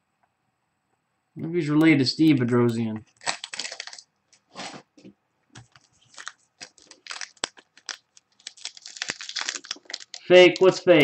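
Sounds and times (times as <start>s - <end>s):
wrapper crinkling: 3.1s - 4.8s, 5.6s - 11.0s.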